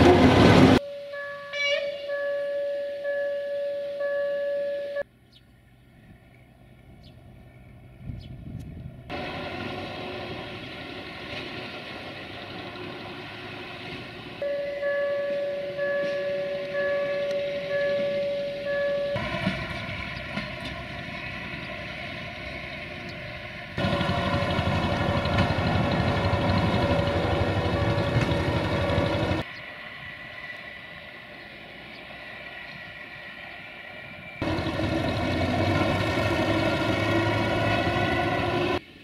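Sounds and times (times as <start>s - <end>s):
rail vehicle rumbling past: 0.0s - 39.0s
level crossing warning signal: 0.8s - 5.0s, 14.4s - 21.8s, 22.8s - 29.5s.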